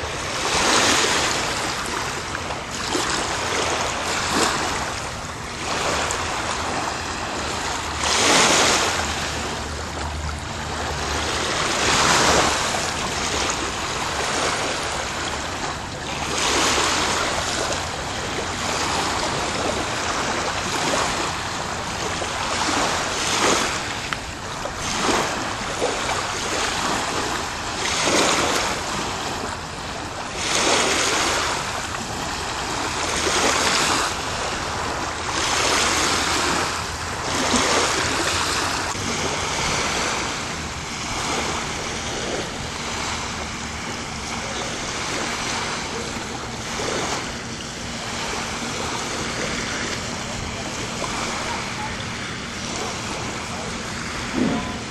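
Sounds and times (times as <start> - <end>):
waves washing against rocky shore: 0.0 - 54.9.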